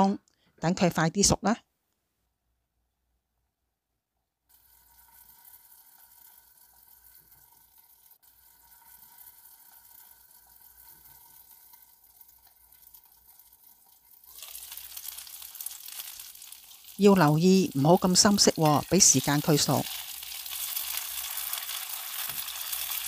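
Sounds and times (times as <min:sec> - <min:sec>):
chicken wings sizzling in oil: 0:04.5 - 0:23.0.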